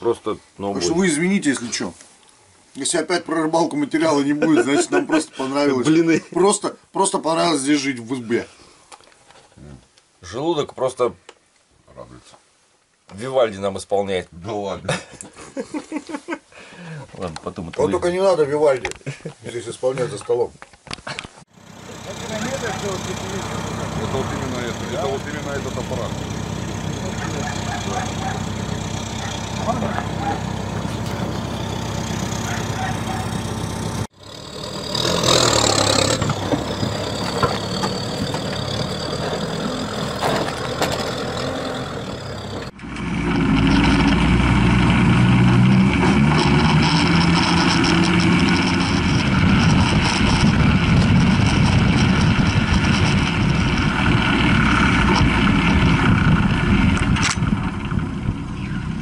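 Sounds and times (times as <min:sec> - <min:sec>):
high whine: 0:21.5 - 0:42.8
diesel engine running: 0:21.5 - 0:59.0.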